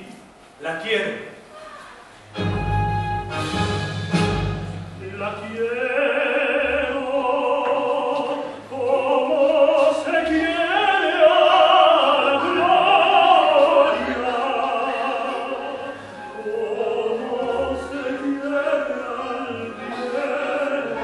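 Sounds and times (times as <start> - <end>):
man singing operatically: 5.0 - 21.0.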